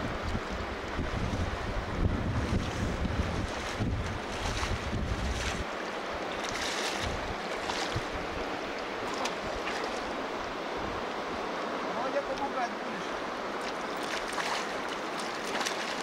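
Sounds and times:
wind rumbling on microphone: 0.0s - 11.8s
rushing river water: 0.0s - 16.0s.

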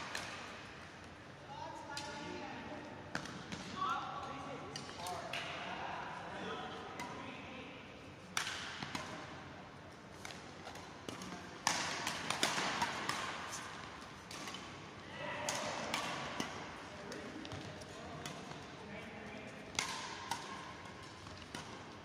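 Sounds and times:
rackets hitting shuttlecock: 0.0s - 0.6s, 3.1s - 3.7s, 7.0s - 7.4s, 8.4s - 9.4s, 10.2s - 18.7s, 19.4s - 22.0s.

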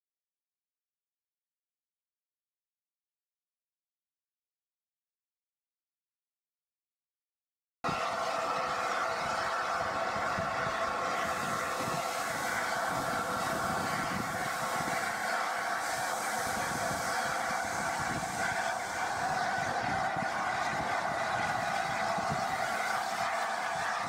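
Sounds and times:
steam hissing: 8.0s - 24.0s
gusting wind on microphone: 9.8s - 23.8s.

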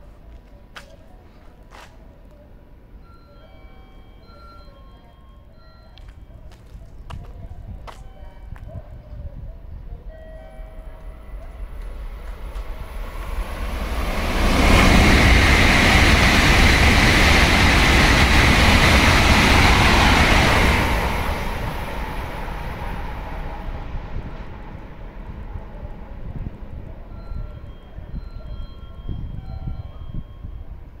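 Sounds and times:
high-speed train passing: 2.5s - 31.0s.

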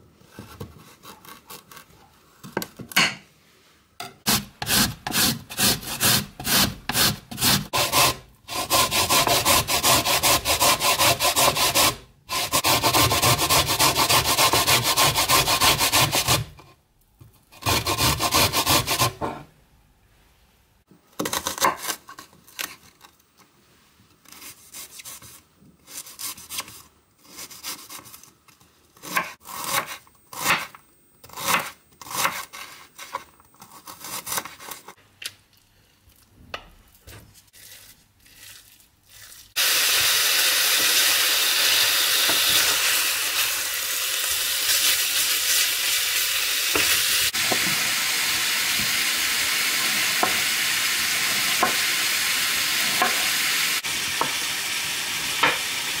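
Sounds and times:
meat sizzling in a pan: 39.6s - 56.0s.

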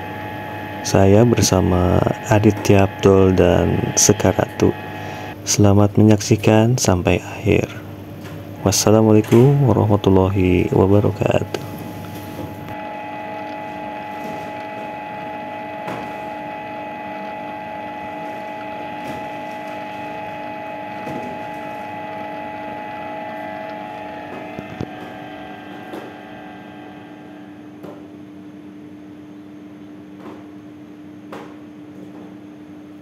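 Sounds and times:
stand mixer motor hum and whine: 0.0s - 5.5s, 7.8s - 28.1s.

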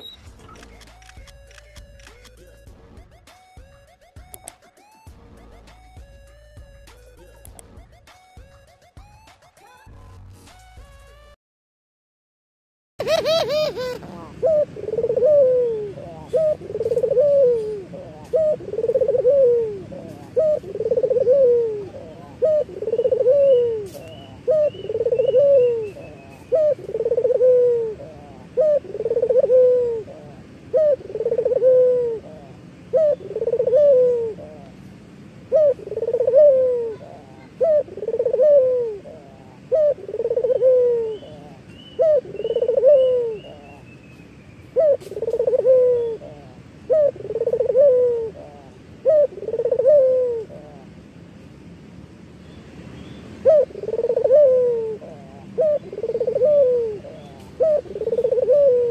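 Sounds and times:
faint bird chirping: 0.0s - 1.1s, 13.1s - 34.8s, 35.5s - 50.9s, 52.4s - 58.9s
dove cooing: 13.0s - 43.8s, 44.7s - 51.0s, 53.4s - 58.9s.

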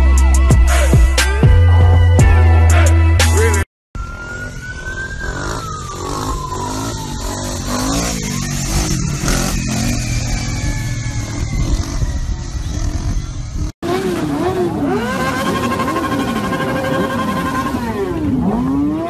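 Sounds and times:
motorcycle engines revving: 4.0s - 19.0s.

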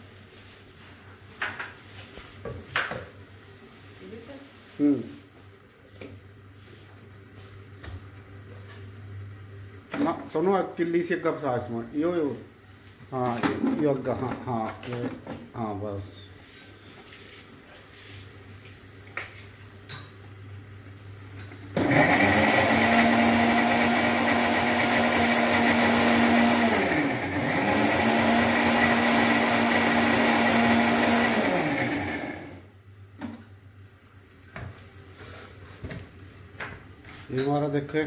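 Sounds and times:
mixer grinder motor running: 21.8s - 32.7s.

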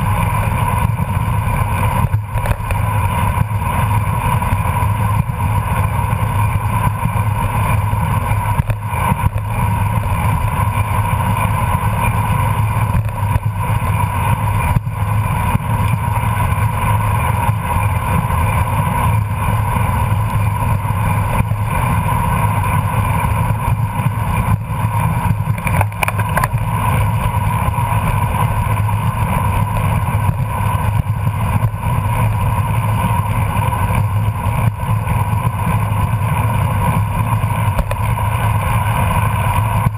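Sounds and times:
tyres rumbling on asphalt: 0.0s - 39.9s
wind rushing over microphone: 0.0s - 39.9s.

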